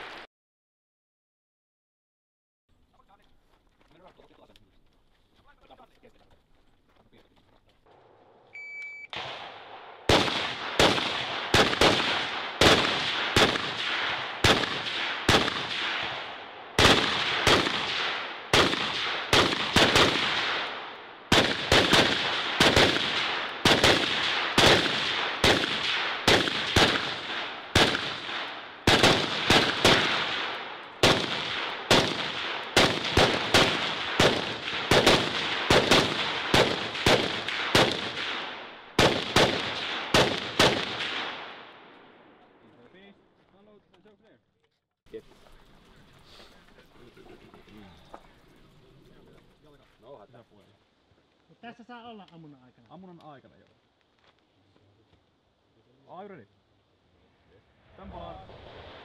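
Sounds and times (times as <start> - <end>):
rifle shots with ringing echo: 9.0 - 42.6.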